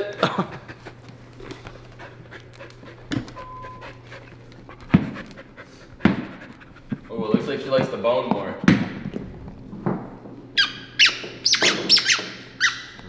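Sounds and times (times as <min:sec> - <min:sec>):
dog panting: 0:00.4 - 0:08.7.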